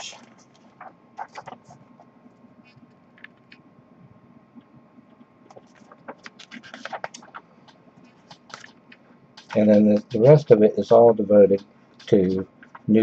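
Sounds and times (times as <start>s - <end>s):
paper rustling and crinkling: 0.3s - 1.8s, 5.5s - 7.4s.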